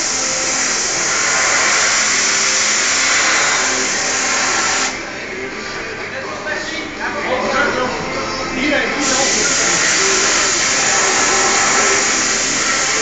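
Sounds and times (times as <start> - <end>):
rushing hiss of air: 0.0 - 5.0, 9.0 - 13.0.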